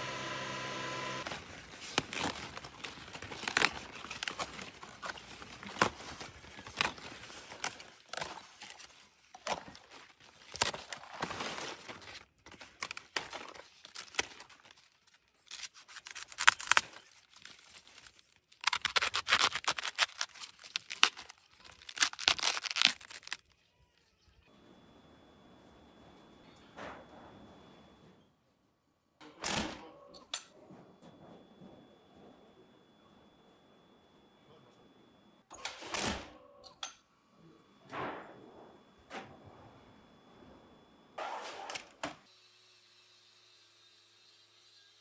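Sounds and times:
leaves tearing: 1.1s - 23.5s
knife cutting cabbage: 18.6s - 23.4s.

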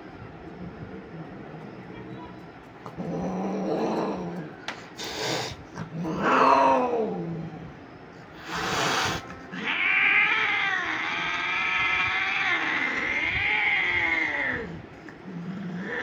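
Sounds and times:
cat yowling: 5.8s - 7.4s, 8.6s - 14.8s.

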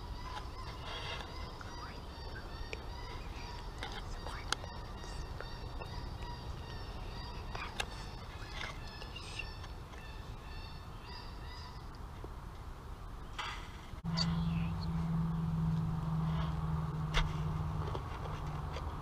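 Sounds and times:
bird-like high calls: 0.0s - 12.0s
low hum: 0.0s - 19.0s
low rumble: 13.1s - 19.0s.

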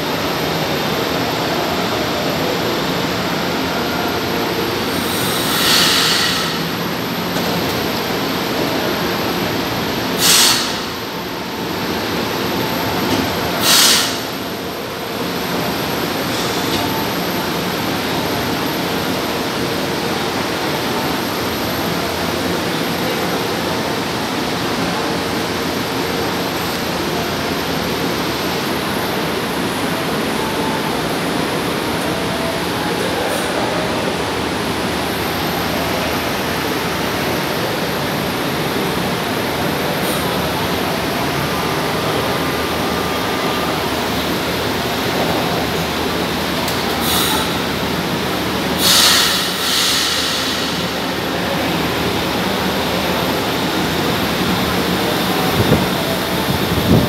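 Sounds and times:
train and station crowd din: 0.0s - 57.0s
short sharp hisses: 5.1s - 6.6s, 10.2s - 10.8s, 13.6s - 14.2s.

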